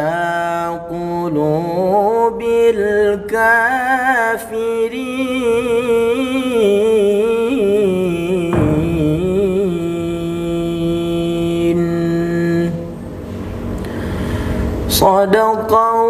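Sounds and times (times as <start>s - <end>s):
man reciting melodically: 0.0s - 13.0s, 14.9s - 16.0s.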